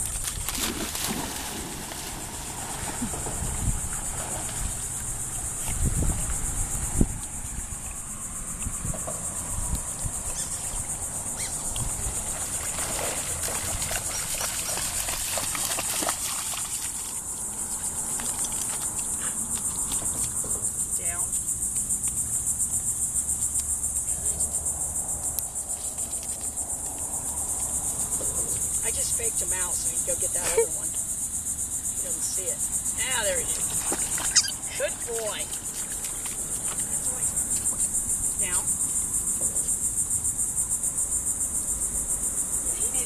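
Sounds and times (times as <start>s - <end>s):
dog splashing in shallow water: 0.0s - 6.6s, 11.4s - 20.5s, 33.4s - 38.0s
high-pitched insect chorus: 0.0s - 43.0s.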